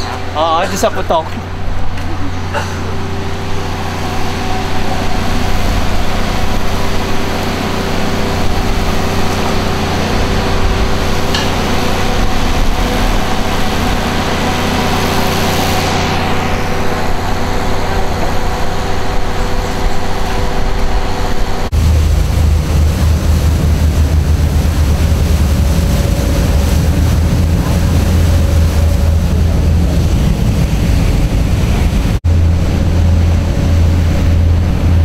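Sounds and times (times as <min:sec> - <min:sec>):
diesel engine running: 0:00.0 - 0:35.0
road and wind noise: 0:00.0 - 0:35.0.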